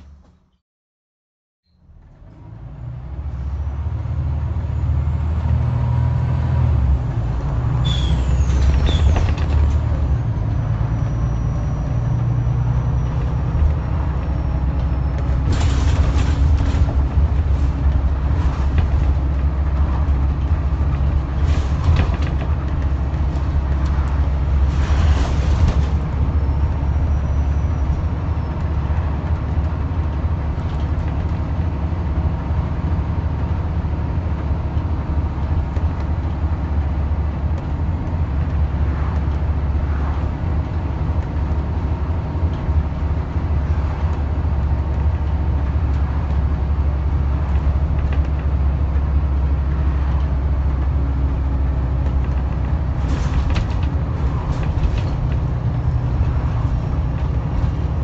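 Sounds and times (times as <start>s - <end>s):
bus diesel engine: 0.0s - 0.6s, 1.7s - 58.0s.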